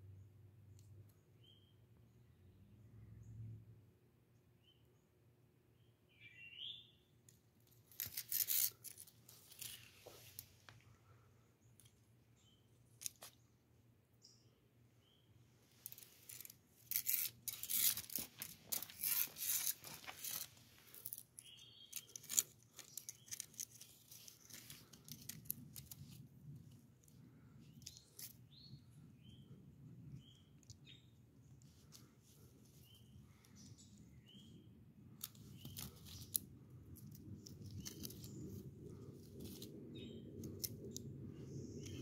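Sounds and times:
faint bird chirps: 1.1 - 3.4, 5.8 - 7.1, 21.4 - 24.0
twig scraping on gritty ground: 7.7 - 10.8, 12.9 - 13.4, 15.6 - 28.5, 35.2 - 42.0.

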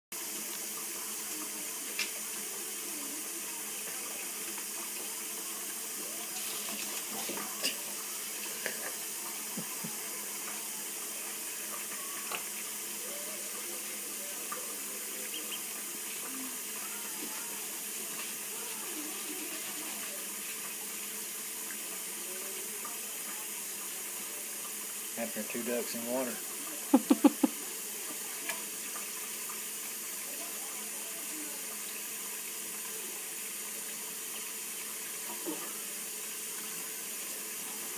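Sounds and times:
faucet running into sink: 0.2 - 37.9
ducklings splashing in water: 15.2 - 15.8.

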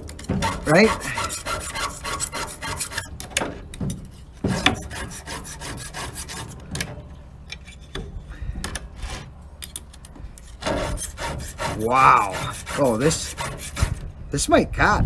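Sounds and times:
file rasping on chainsaw chain: 0.4 - 3.1, 4.5 - 6.6, 10.4 - 14.0.

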